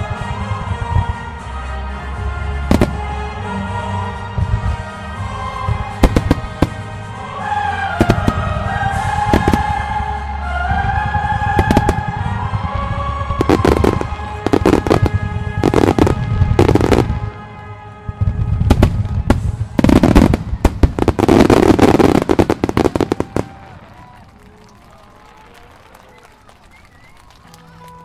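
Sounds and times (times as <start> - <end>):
music: 0.0 - 28.0
fireworks bangs and crackle: 2.6 - 3.3, 4.4 - 7.2, 7.9 - 10.1, 10.8 - 17.4, 18.1 - 27.5.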